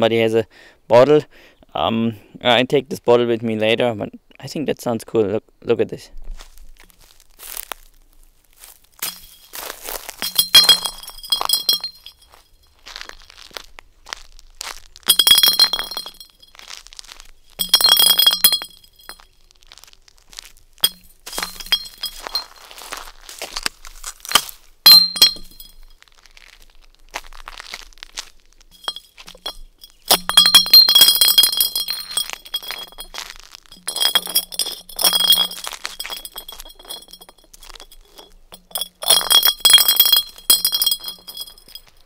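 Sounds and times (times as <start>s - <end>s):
glass bottle rolling on concrete: 9.0s - 13.6s, 15.0s - 19.8s, 20.4s - 26.6s, 27.2s - 42.0s.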